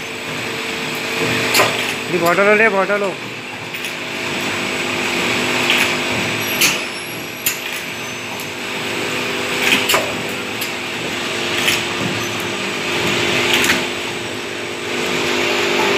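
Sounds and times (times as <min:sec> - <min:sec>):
machine motor hum: 0:00.0 - 0:15.9
bottles clicking and clacking: 0:05.3 - 0:14.2.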